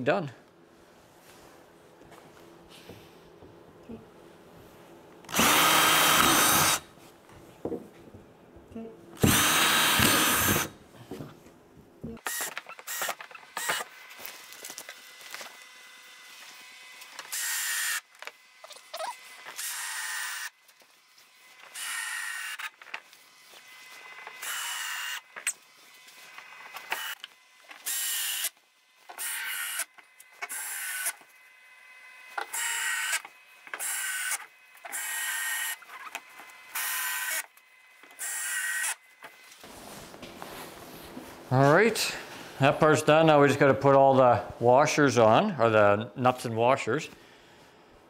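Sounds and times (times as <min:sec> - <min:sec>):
cordless drill drilling plastic: 0:05.3 - 0:06.8, 0:09.2 - 0:10.7, 0:12.2 - 0:13.9, 0:17.2 - 0:18.1, 0:19.4 - 0:20.5, 0:26.6 - 0:28.5, 0:32.4 - 0:39.0.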